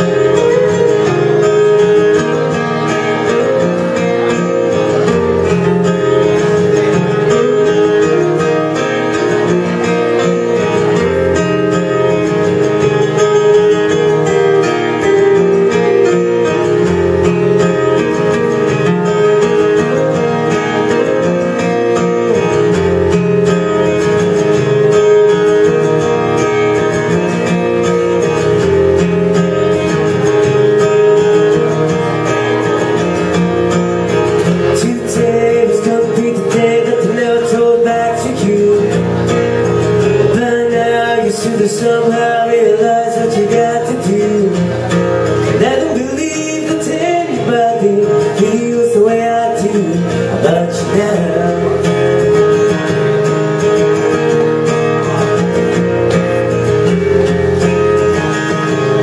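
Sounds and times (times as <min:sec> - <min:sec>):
man singing: 0:00.0 - 0:22.8, 0:34.3 - 0:53.2
strummed acoustic guitar: 0:00.0 - 0:59.0.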